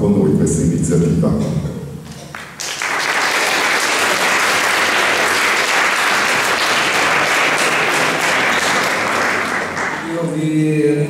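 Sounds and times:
audience applauding: 2.3s - 10.2s.

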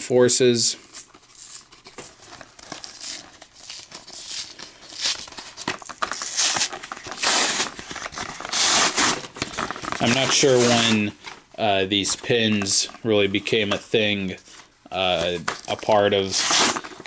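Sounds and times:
cardboard backing tearing: 0.9s - 11.0s, 16.2s - 17.0s
plastic shell crinkling: 1.0s - 11.4s.

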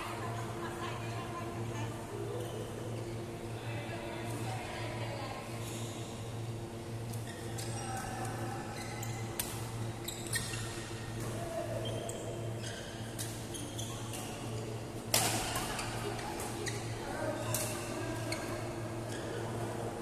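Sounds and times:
shoes squeaking on court floor: 7.1s - 14.6s, 15.6s - 19.8s
racket hitting shuttlecock: 15.1s - 15.7s.

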